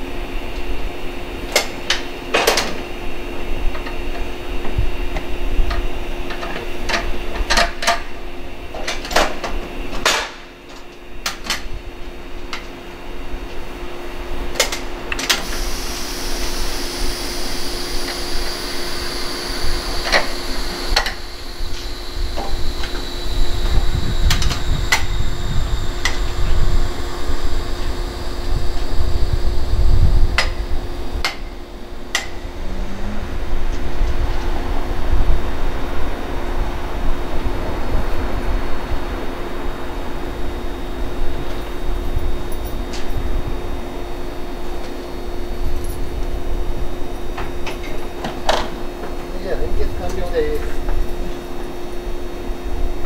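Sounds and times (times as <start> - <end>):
steady hum: 0.0 - 53.0
faint high whine falling: 15.4 - 35.9
low rumble: 21.0 - 36.0.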